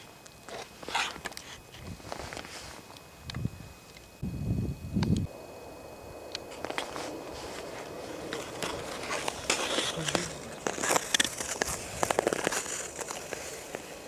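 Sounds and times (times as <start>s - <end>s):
ice skate blades scraping: 0.4s - 2.9s, 6.5s - 14.0s.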